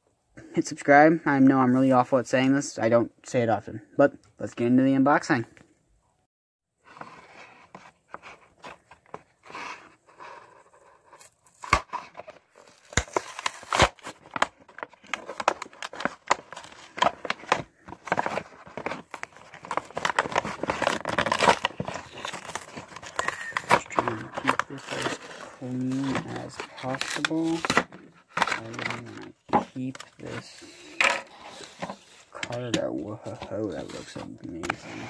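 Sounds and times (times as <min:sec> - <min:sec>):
cardboard tearing: 0:07.0 - 0:32.3
plastic packaging crinkling: 0:11.2 - 0:30.9.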